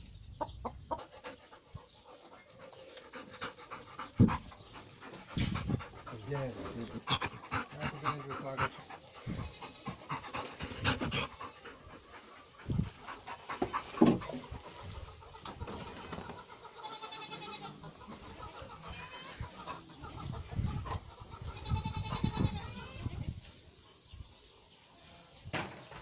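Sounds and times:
goat kids bleating: 0:09.3 - 0:10.1, 0:16.8 - 0:19.5, 0:21.5 - 0:23.3
rustling in straw: 0:13.0 - 0:15.4.

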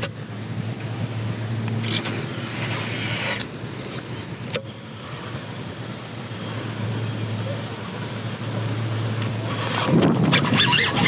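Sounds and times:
steady low hum: 0:00.0 - 0:10.4
fishing reel spool whirring: 0:01.8 - 0:03.5.

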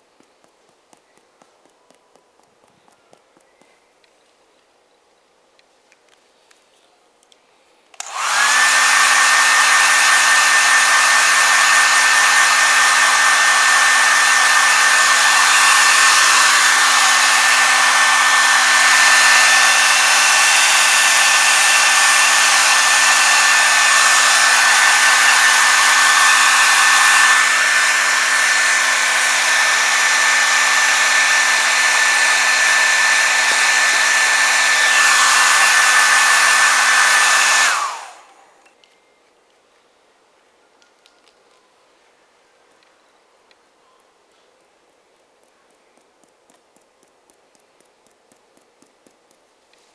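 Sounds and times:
hair dryer blowing: 0:08.0 - 0:38.6.

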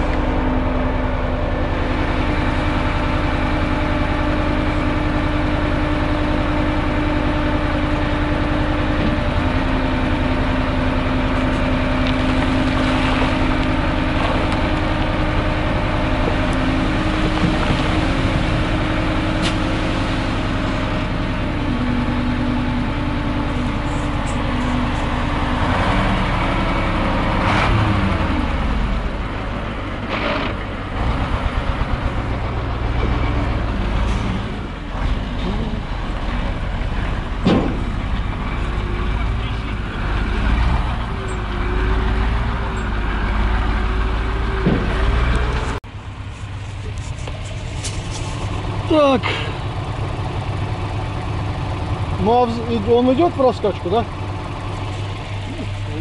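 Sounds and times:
truck engine running: 0:00.0 - 0:56.0
soil sliding out: 0:09.0 - 0:22.7, 0:44.8 - 0:49.6.

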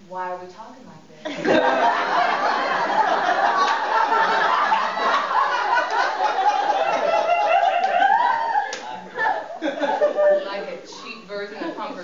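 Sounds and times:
audience laughing: 0:01.3 - 0:12.0.

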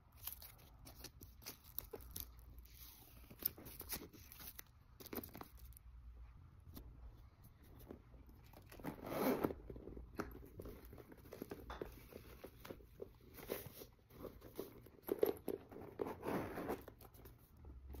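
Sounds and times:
zipper running: 0:08.7 - 0:09.8.

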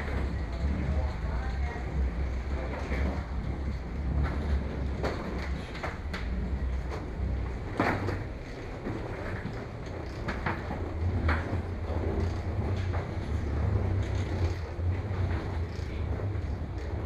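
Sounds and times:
wheeled suitcases rolling: 0:00.0 - 0:17.0.

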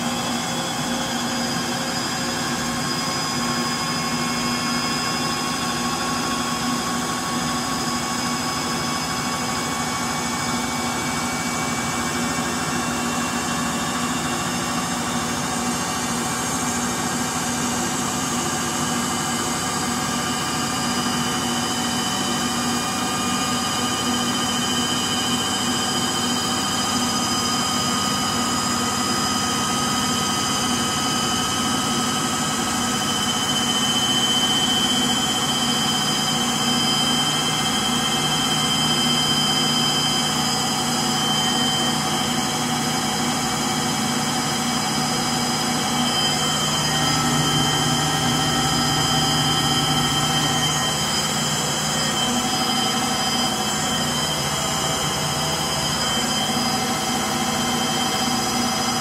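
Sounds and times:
washing machine spin whine: 0:00.0 - 0:59.0
high rising tones: 0:45.7 - 0:59.0.

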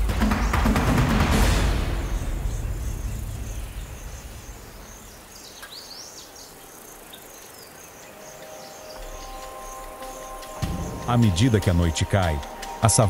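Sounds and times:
insects chirping: 0:00.0 - 0:13.0
low music swell: 0:07.9 - 0:13.0.

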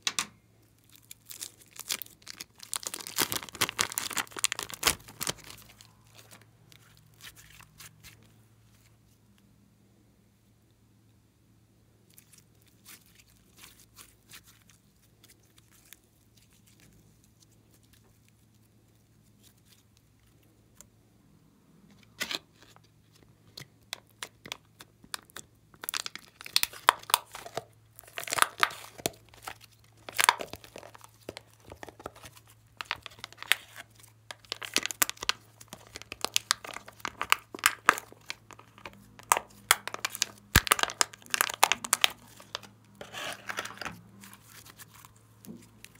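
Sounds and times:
slime crackling and popping: 0:00.0 - 0:08.2, 0:23.9 - 0:45.9.

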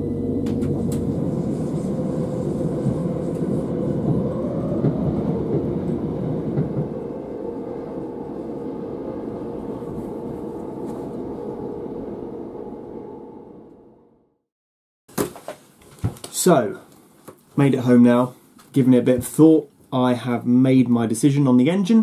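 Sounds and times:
train rumble inside carriage: 0:00.0 - 0:13.9
steady hum: 0:00.0 - 0:14.2
rising whine: 0:00.0 - 0:14.4.

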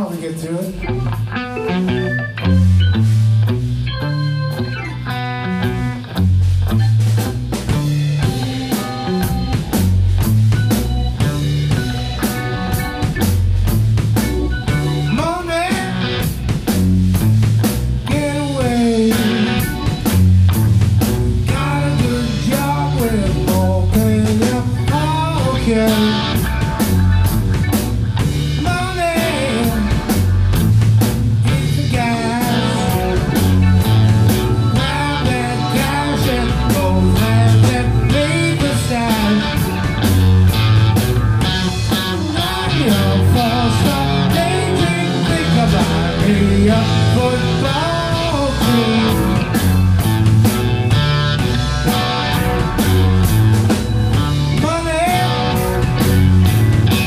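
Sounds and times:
man singing: 0:00.0 - 0:01.0, 0:15.1 - 0:16.3, 0:18.0 - 0:19.7, 0:21.4 - 0:26.5, 0:28.6 - 0:30.3, 0:31.4 - 0:33.7, 0:34.7 - 0:39.8, 0:42.2 - 0:49.6, 0:54.5 - 0:55.9
bass guitar: 0:00.0 - 0:57.0
drum kit beat: 0:00.0 - 0:57.0
electric guitars: 0:00.0 - 0:57.0.

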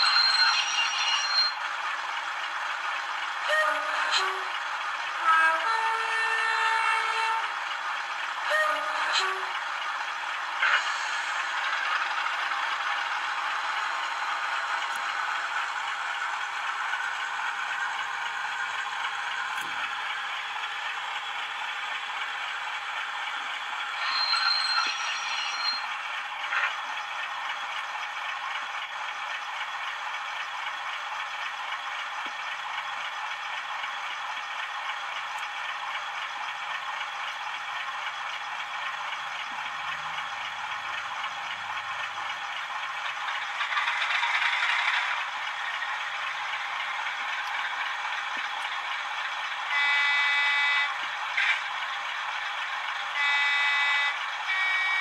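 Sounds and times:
short pitched tone: 0:00.0 - 0:01.6, 0:24.0 - 0:25.9
model locomotive engine sounds: 0:00.0 - 0:55.0.

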